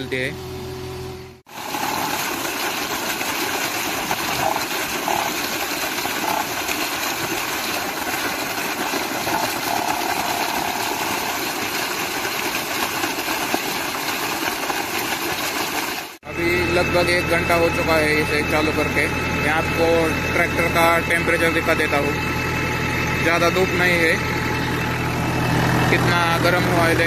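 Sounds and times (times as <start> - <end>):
water gushing and splashing: 1.5 - 16.2.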